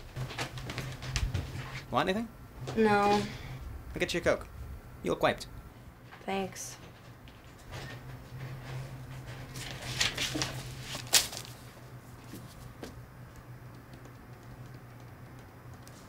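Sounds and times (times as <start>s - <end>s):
steady low hum: 0.0s - 16.0s
paper rustling: 7.8s - 12.7s.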